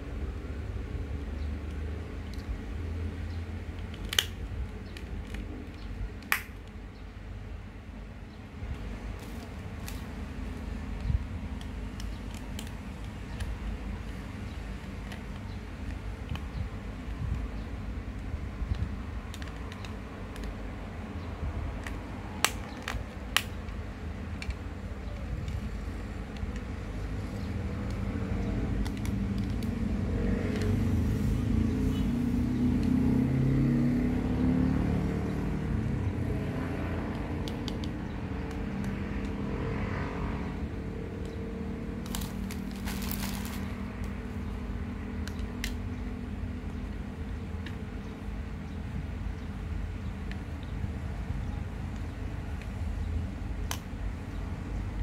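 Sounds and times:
motor vehicle passing: 27.1s - 45.2s.

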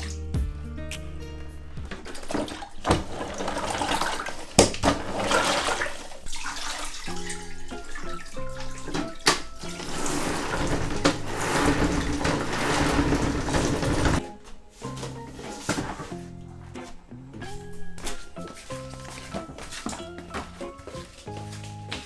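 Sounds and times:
water sloshing in plastic bucket: 1.8s - 14.2s, 15.1s - 17.0s, 17.9s - 21.2s.

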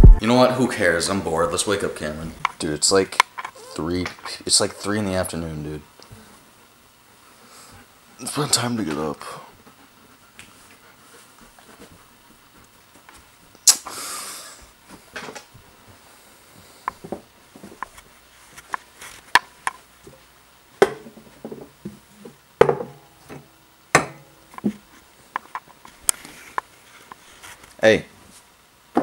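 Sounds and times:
rustling: 17.4s - 20.3s, 24.5s - 28.6s.

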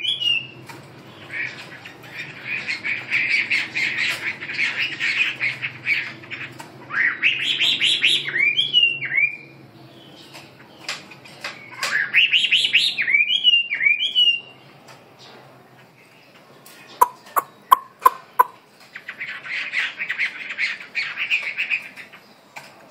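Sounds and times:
songbird singing: 7.0s - 22.5s.

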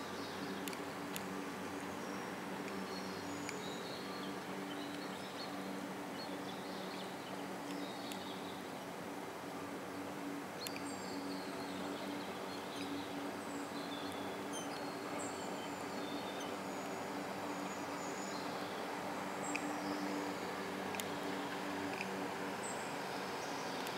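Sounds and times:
birds chirping: 10.6s - 21.6s.

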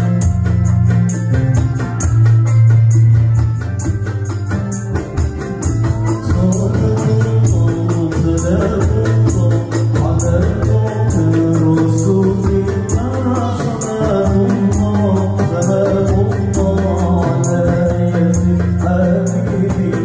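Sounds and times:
music with bass and beat: 0.0s - 20.0s
person singing: 5.8s - 20.0s.

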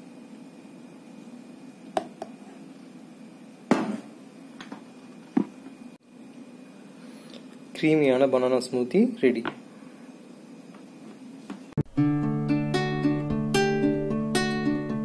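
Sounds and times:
low steady hum: 11.8s - 15.0s.

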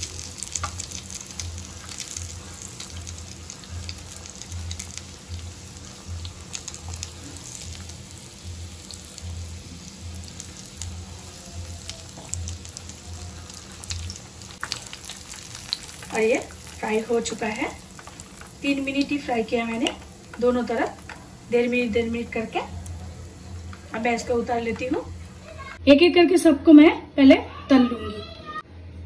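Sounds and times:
deep-frying oil sizzling: 0.0s - 25.8s.

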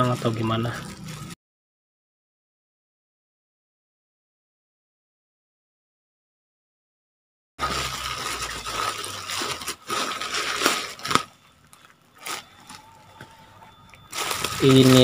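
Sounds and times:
plastic bag crinkling: 0.0s - 1.4s, 7.6s - 15.0s.

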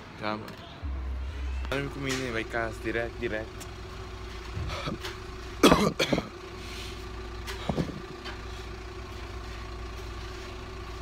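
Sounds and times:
low mechanical hum: 0.8s - 11.0s.

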